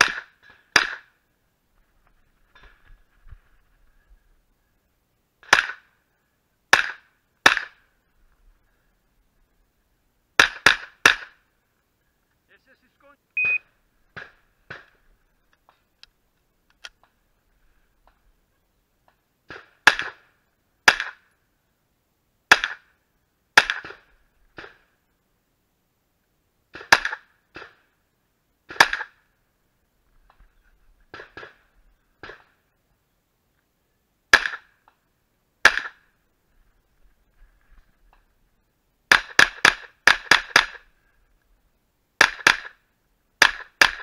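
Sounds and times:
gunshots: 0.0 - 1.1, 5.4 - 5.9, 6.7 - 7.8, 10.4 - 11.4, 19.5 - 21.2, 22.5 - 22.9, 23.6 - 24.8, 26.7 - 27.8, 28.7 - 29.2, 34.3 - 34.7, 35.6 - 36.0, 39.1 - 40.8, 42.2 - 42.8, 43.4 - 44.0.

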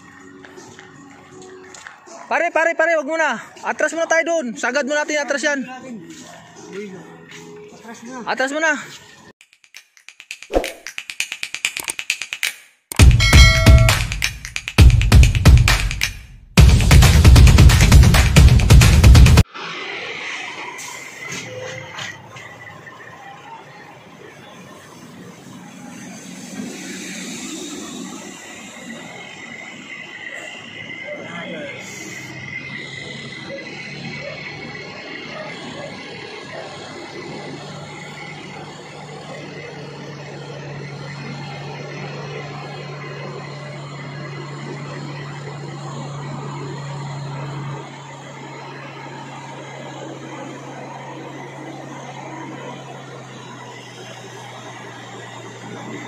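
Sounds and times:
vehicles passing by: 0.0 - 9.3, 13.0 - 56.0
road noise: 0.0 - 9.4, 13.0 - 56.0
thin high tone: 13.0 - 14.2
truck engine droning: 13.0 - 56.0.

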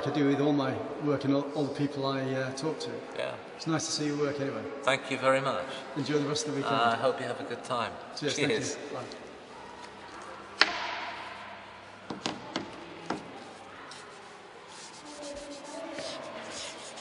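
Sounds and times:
sharp knock: 10.6 - 13.2.

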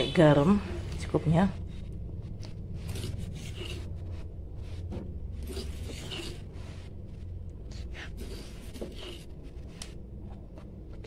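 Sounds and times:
steady low hum: 0.0 - 11.0
spoon scraping in pot: 2.4 - 4.3, 5.3 - 7.0, 8.1 - 9.5.

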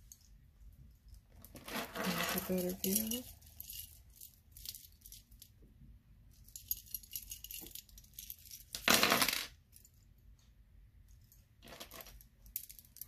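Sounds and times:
metal charms clinking: 2.0 - 5.5, 6.4 - 8.8.

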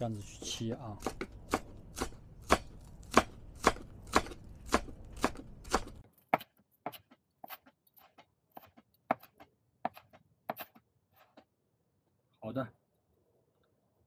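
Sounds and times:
knife chopping on cutting board: 0.4 - 11.5.

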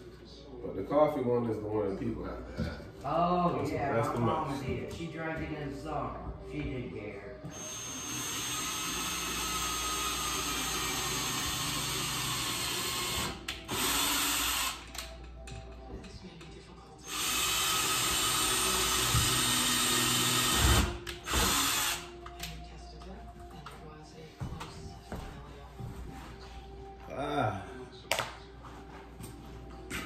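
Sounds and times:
power drill running: 7.5 - 14.9, 17.0 - 22.1.

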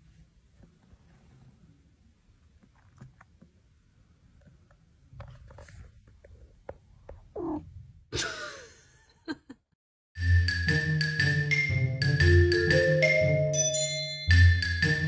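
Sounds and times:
cat purring: 5.6 - 8.0
cat meowing: 7.4 - 7.6.

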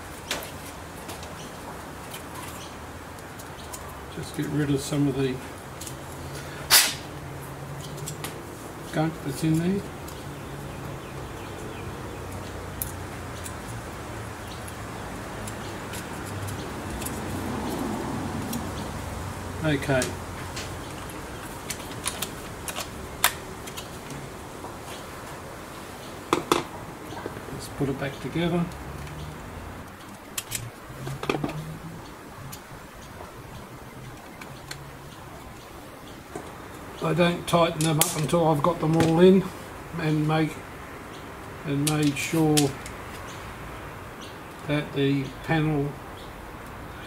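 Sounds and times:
small parts clicking: 28.7 - 35.2.

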